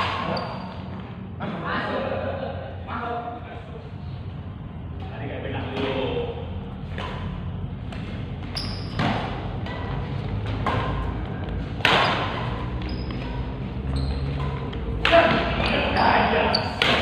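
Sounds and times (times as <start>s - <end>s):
rackets hitting shuttlecock: 6.8s - 17.0s.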